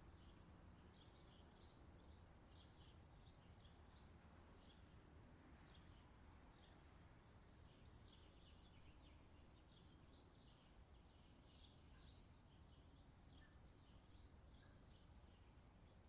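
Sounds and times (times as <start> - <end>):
small birds chirping: 7.5 - 16.0.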